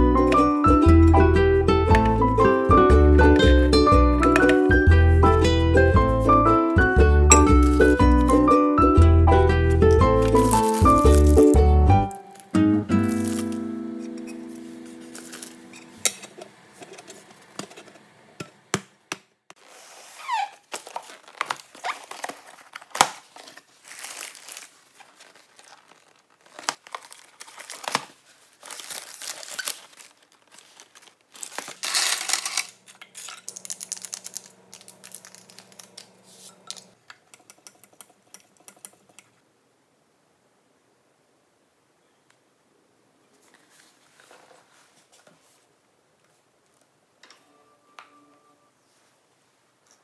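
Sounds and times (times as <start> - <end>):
paper bag and cardboard crinkling: 7.4 - 8.5, 9.8 - 13.6, 14.3 - 16.0, 19.6 - 37.0.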